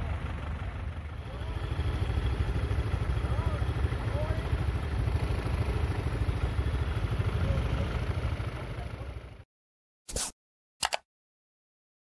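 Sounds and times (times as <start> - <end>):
tractor engine running: 0.0 - 7.3
short sounds: 10.1 - 11.0.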